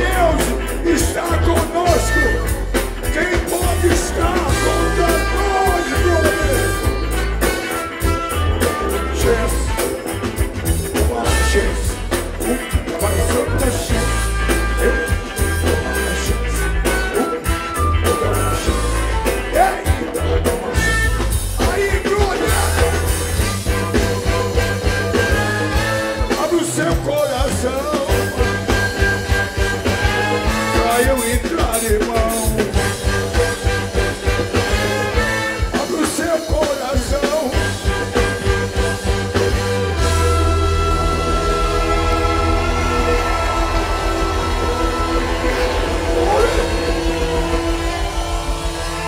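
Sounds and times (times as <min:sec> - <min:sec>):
man singing into microphone: 0:00.0 - 0:06.9, 0:09.1 - 0:10.1, 0:10.9 - 0:20.6, 0:21.6 - 0:23.2, 0:26.3 - 0:28.8, 0:30.3 - 0:32.9, 0:35.7 - 0:37.8
live funk band playing: 0:00.0 - 0:49.0.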